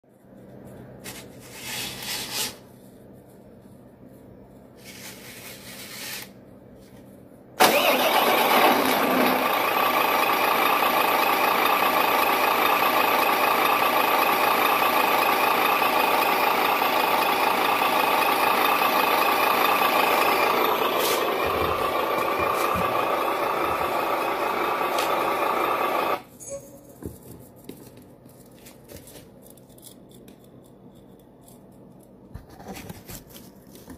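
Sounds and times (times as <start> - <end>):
simulated truck engine sound: 7.6 - 26.3.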